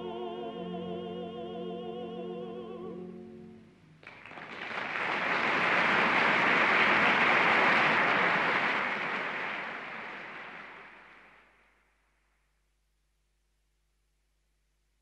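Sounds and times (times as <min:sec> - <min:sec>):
audience applause: 0:04.0 - 0:11.5.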